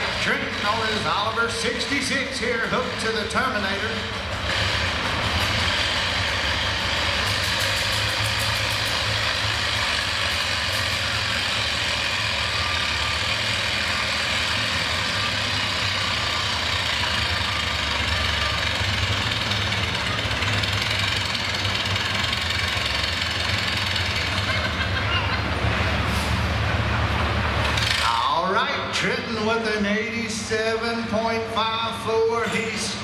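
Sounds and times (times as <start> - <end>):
tractor engine under load: 0.0 - 33.0.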